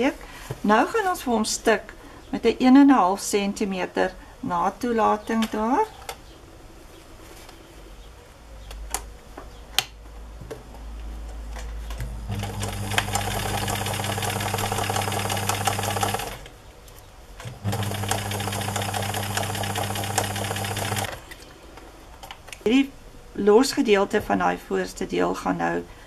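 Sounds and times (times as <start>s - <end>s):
sewing machine stitching: 12.2s - 16.5s, 17.6s - 21.2s.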